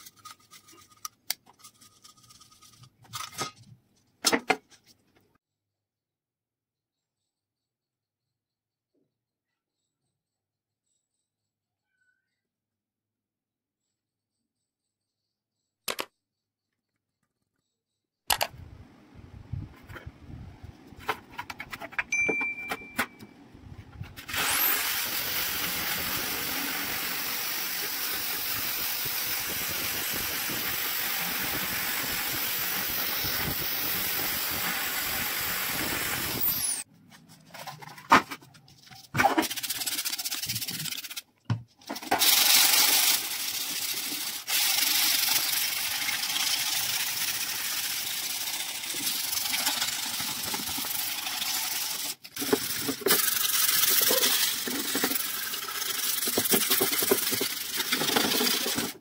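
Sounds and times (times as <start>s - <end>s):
wire brush drill scrubbing metal: 24.2s - 36.8s, 42.2s - 59.0s.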